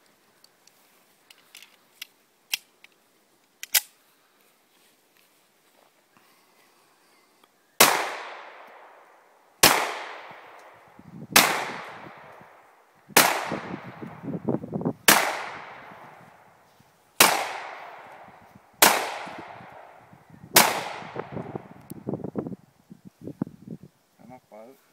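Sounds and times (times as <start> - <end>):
pistol shots with echo: 7.8 - 8.9, 9.6 - 10.6, 11.4 - 12.3, 13.2 - 14.0, 15.1 - 16.0, 17.2 - 18.2, 18.8 - 20.0, 20.6 - 21.4.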